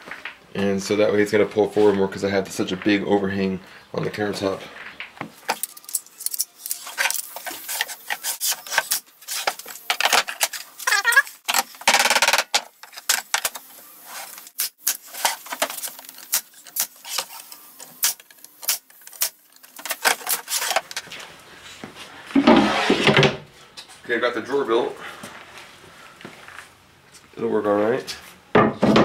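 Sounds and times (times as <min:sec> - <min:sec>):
panels knocking and clattering: 0:28.6 - 0:29.0.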